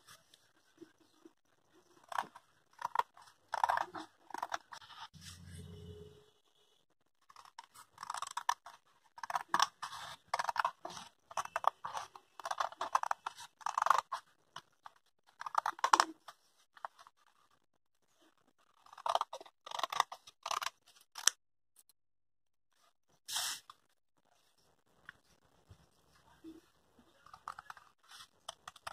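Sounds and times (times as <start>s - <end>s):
scissors cutting paper: 1.8s - 5.1s, 7.2s - 16.2s, 18.6s - 21.4s, 27.1s - 28.9s.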